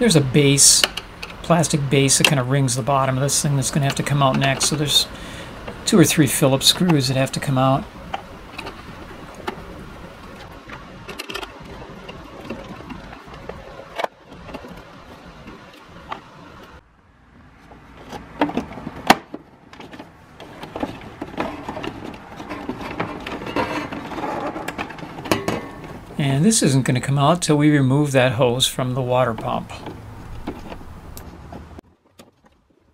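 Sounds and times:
screwdriver scraping and rattling: 0:06.7 - 0:14.9, 0:19.8 - 0:26.2.

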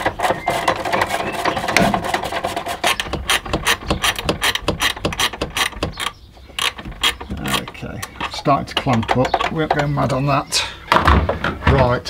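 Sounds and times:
socket ratchet clicking: 0:02.9 - 0:10.0.

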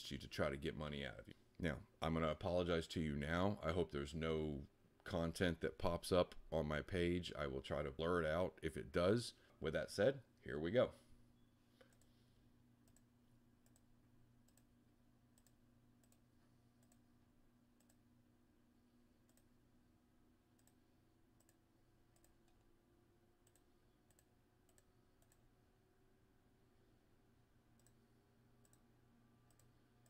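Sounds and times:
faint low hum: 0:00.0 - 0:30.0
computer mouse clicks: 0:11.8 - 0:12.2, 0:12.8 - 0:14.7, 0:15.3 - 0:17.1, 0:17.8 - 0:18.0, 0:19.2 - 0:19.5, 0:20.6 - 0:20.8, 0:21.4 - 0:22.7, 0:23.4 - 0:25.5, 0:27.8 - 0:28.0, 0:28.6 - 0:28.9, 0:29.5 - 0:29.8.

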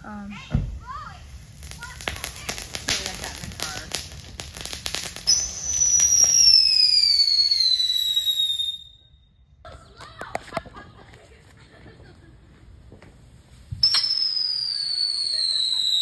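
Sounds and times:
firework crackling pops: 0:00.4 - 0:08.8, 0:12.8 - 0:16.0
falling firework whistle: 0:01.6 - 0:09.4, 0:13.7 - 0:16.0.

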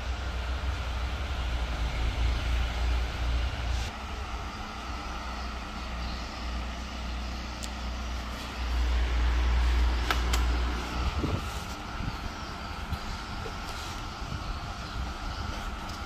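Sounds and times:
electric fan humming: 0:00.0 - 0:16.0
fan pull cord clicks: 0:10.0 - 0:10.7.

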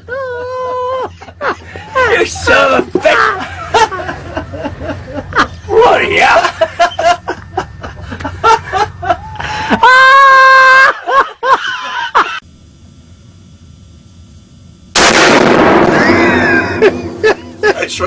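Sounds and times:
men laughing: 0:00.0 - 0:12.4, 0:15.9 - 0:18.0
men shouting: 0:01.7 - 0:03.6, 0:05.4 - 0:06.7
rifle shot indoors: 0:15.0 - 0:16.2.

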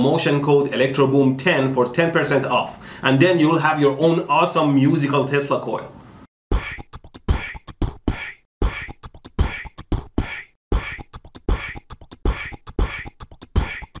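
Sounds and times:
beatboxing: 0:06.5 - 0:14.0.

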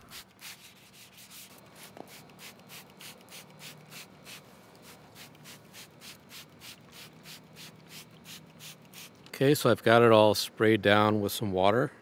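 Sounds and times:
spray bottle squirting water: 0:00.0 - 0:09.3.

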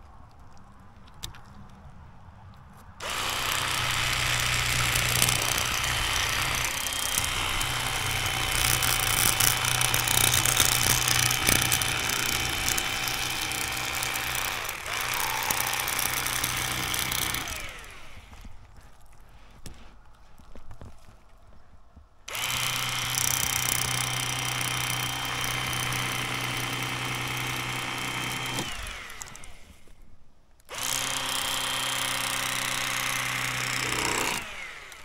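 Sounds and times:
electric knife buzzing: 0:03.0 - 0:18.5, 0:22.3 - 0:29.8, 0:30.7 - 0:35.0.

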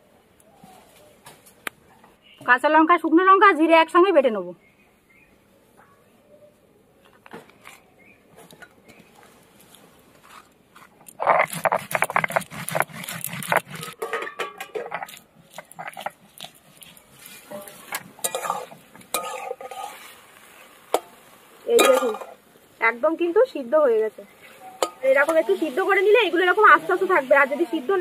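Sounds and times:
wooden spatula scraping wok: 0:09.6 - 0:22.8, 0:23.9 - 0:28.0
grinding stone on stone slab: 0:10.2 - 0:14.0, 0:14.8 - 0:16.6.

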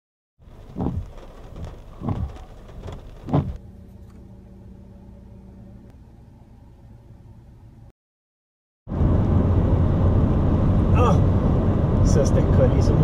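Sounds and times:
car humming: 0:00.4 - 0:07.9, 0:08.9 - 0:13.0
loud low thumps: 0:00.7 - 0:03.6.

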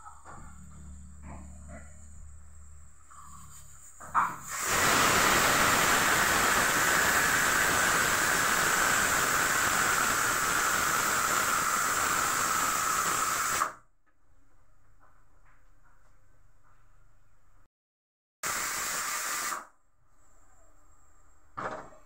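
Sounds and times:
pressure cooker whistling: 0:04.3 - 0:13.8, 0:18.4 - 0:19.8.

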